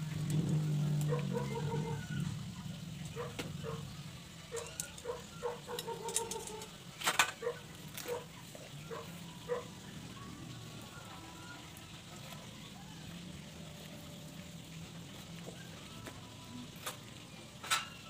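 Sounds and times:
chickens clucking: 0:03.1 - 0:09.9.

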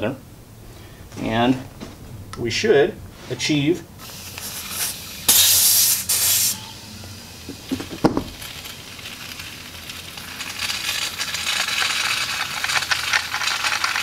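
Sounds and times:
air rushing through hose: 0:04.0 - 0:08.5
compressed air hissing: 0:04.0 - 0:08.8.

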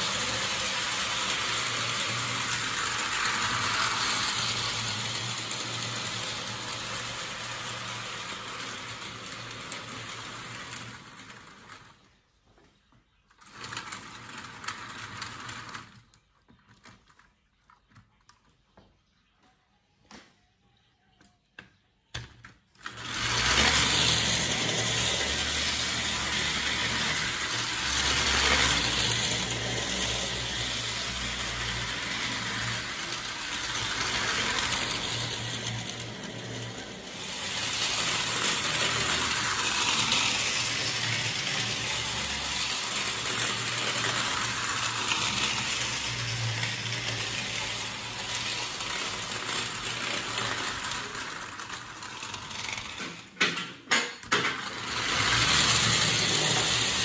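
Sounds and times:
clockwork motor whirring: 0:00.0 - 0:12.0, 0:22.8 - 0:53.4, 0:54.3 - 0:57.0
clockwork winding clicks: 0:00.0 - 0:12.0, 0:22.8 - 0:53.4, 0:54.2 - 0:57.0
toy train wheels clattering: 0:00.0 - 0:12.0, 0:13.4 - 0:17.8, 0:22.8 - 0:57.0.

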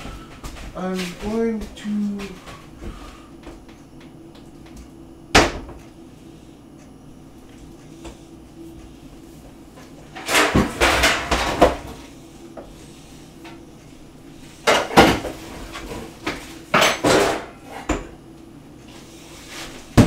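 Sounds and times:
kitchenware clattering and scraping: 0:10.1 - 0:12.0, 0:14.6 - 0:18.1.

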